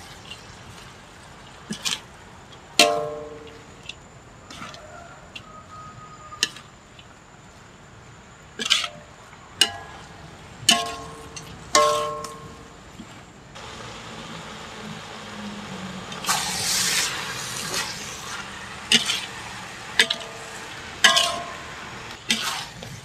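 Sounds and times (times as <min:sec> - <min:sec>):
wok ringing: 0:02.8 - 0:03.6, 0:09.6 - 0:12.7, 0:17.8 - 0:22.0
metal spatula scraping a wok: 0:10.8 - 0:12.5, 0:16.1 - 0:23.0.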